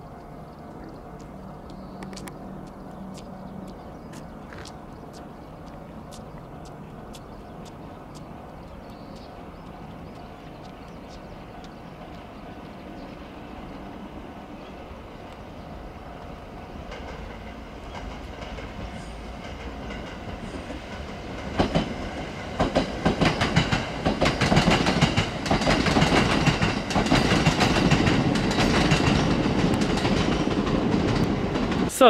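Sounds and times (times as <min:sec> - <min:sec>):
electric train rumbling: 0:00.0 - 0:32.0
wheels clattering over rail joints: 0:16.9 - 0:32.0.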